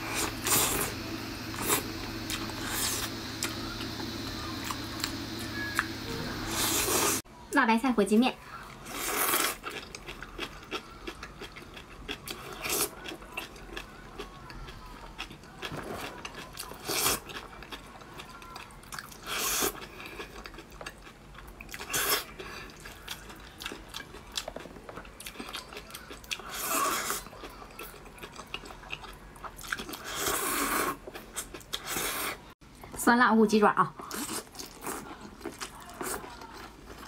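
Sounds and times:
wet chewing: 8.8 - 32.4, 34.0 - 37.0
loud noodle slurps: 30.0 - 31.0.

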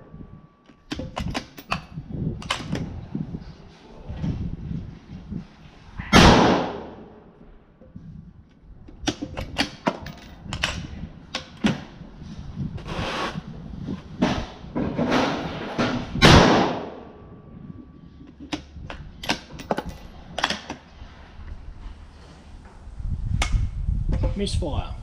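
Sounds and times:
gunshot bang: 6.1 - 7.0, 16.2 - 17.0.

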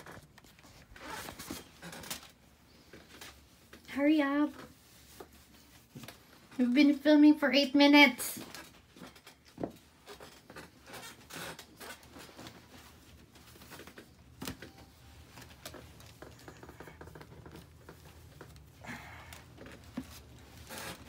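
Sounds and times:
plastic and paper rustling: 8.4 - 21.0.

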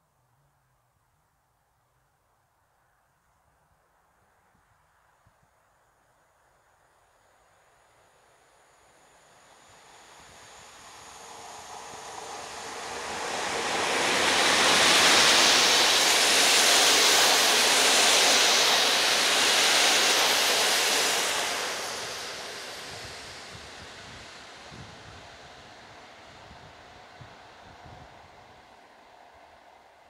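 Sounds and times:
passenger train passing: 7.6 - 30.0.

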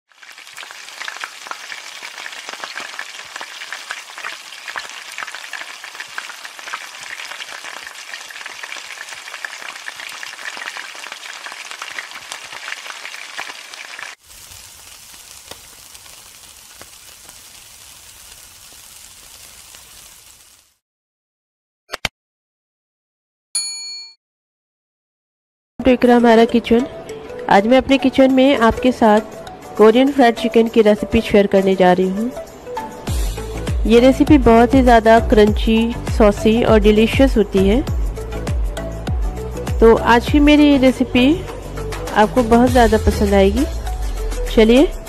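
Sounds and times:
meat sizzling on a grill: 0.1 - 20.8, 33.1 - 33.8
oil sizzling in a wok: 0.1 - 20.8, 32.3 - 45.0.

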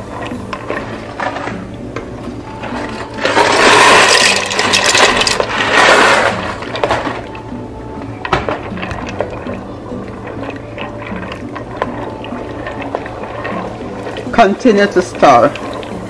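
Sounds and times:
light background music: 0.0 - 16.0
dry pasta pouring into a pot: 2.8 - 7.2.

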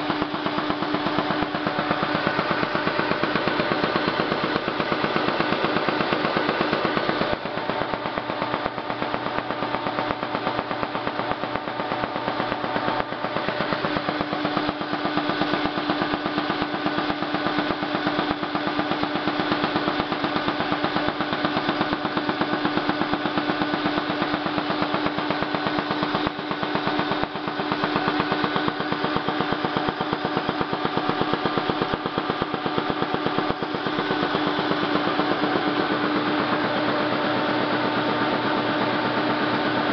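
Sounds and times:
machine hum: 0.0 - 17.4
printing press mechanical clatter: 0.0 - 39.9.

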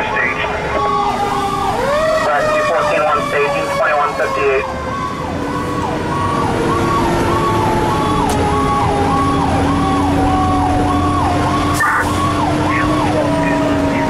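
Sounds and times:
fire engine siren wailing: 0.0 - 14.0
truck engine running: 4.0 - 14.0.

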